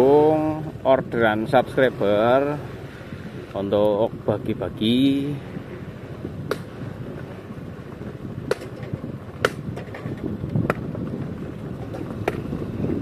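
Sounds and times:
motor scooter engine rumble: 0.0 - 13.0
sharp knocks: 8.5 - 10.8.

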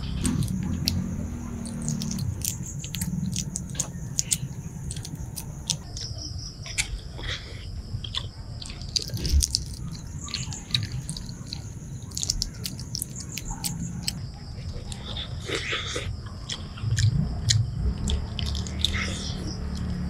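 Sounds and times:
eggshell cracking: 0.0 - 6.0, 8.9 - 14.2
wet mouth chewing: 0.0 - 14.2, 14.8 - 19.9.

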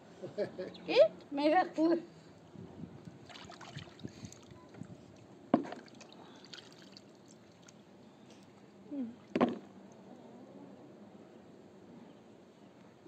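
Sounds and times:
water sloshing in basin: 3.2 - 4.8, 5.6 - 7.8.

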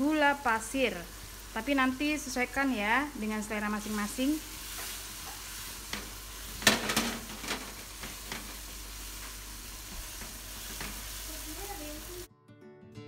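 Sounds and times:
paste sizzling in oil: 0.1 - 12.3
guitar music: 11.3 - 13.0.

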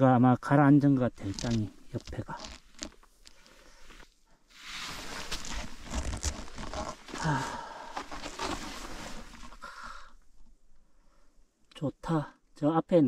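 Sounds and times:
clothing rustling: 1.1 - 9.7
snow crunching: 4.5 - 9.6.

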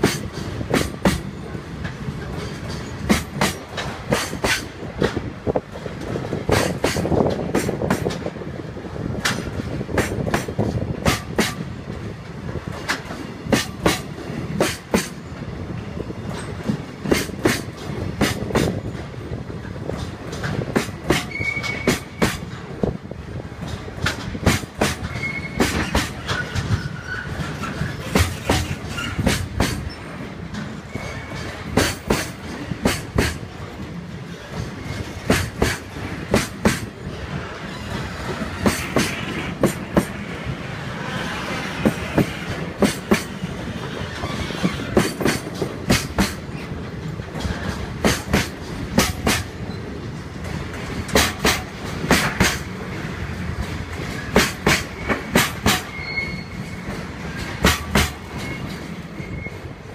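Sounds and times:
wheels clacking over rail joints: 0.0 - 59.9
high wheel squeals: 21.3 - 22.5, 25.0 - 30.2, 30.8 - 31.6, 54.2 - 57.4, 58.3 - 59.8.

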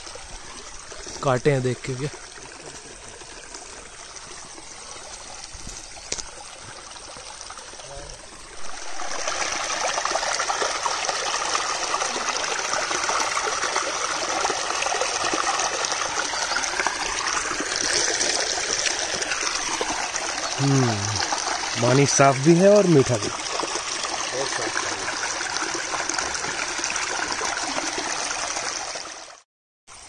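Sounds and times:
stream rushing over rocks: 8.3 - 29.4.

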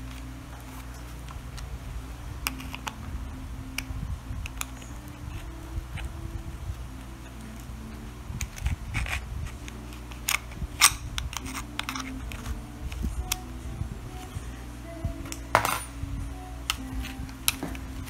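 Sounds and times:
steady low hum: 0.0 - 18.0
metal clips clicking and scraping: 2.4 - 3.0, 8.4 - 13.4.

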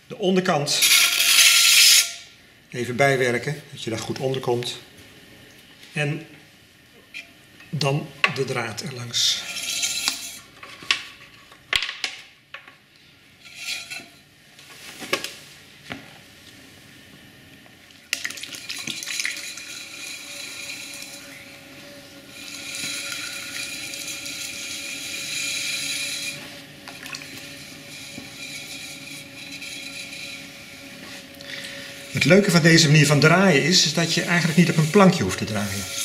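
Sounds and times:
potter's wheel motor hum: 7.1 - 11.4, 13.3 - 14.3, 17.4 - 36.0.

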